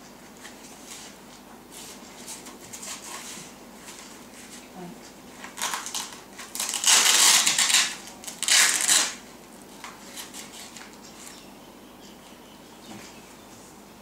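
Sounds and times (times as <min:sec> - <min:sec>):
velcro strap ripping: 0:05.5 - 0:09.2.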